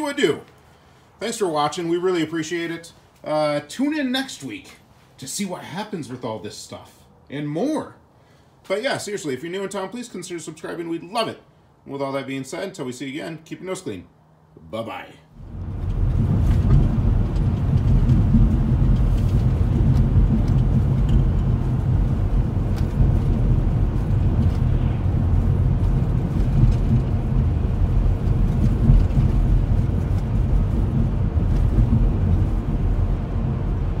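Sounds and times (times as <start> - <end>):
vehicle road and engine rumble: 13.2 - 34.0.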